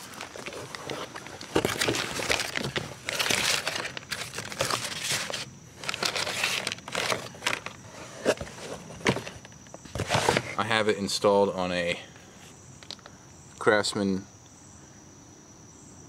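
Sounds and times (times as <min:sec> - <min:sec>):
cardboard and paper rustling: 0:00.0 - 0:10.7.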